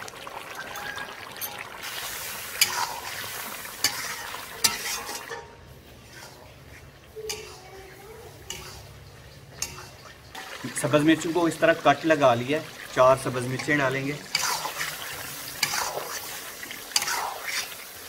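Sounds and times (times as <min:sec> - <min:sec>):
oil sizzling: 0:00.0 - 0:18.0
spatula scraping a pan: 0:01.9 - 0:10.6, 0:13.5 - 0:18.0
spatula clinking against pan: 0:03.8 - 0:05.6, 0:07.2 - 0:07.7, 0:08.4 - 0:10.2.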